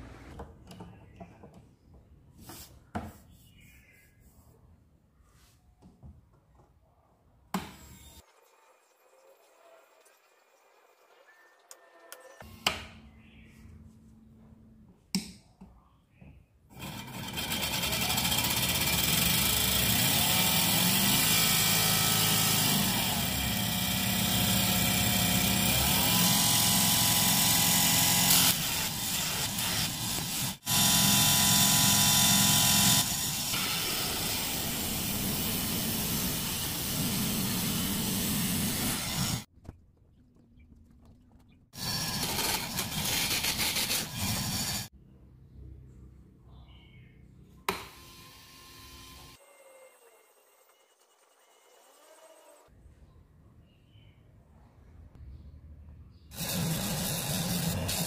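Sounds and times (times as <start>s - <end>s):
table saw motor whining: 16.8s - 39.5s, 56.4s - 58.0s.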